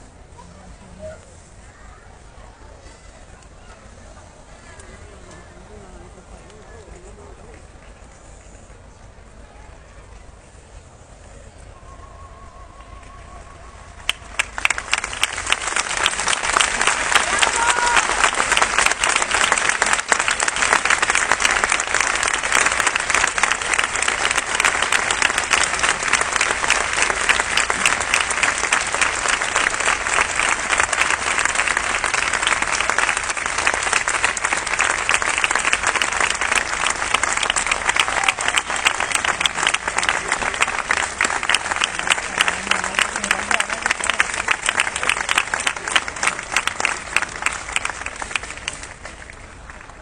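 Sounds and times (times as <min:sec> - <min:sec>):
crowd applauding: 0:12.8 - 0:50.0.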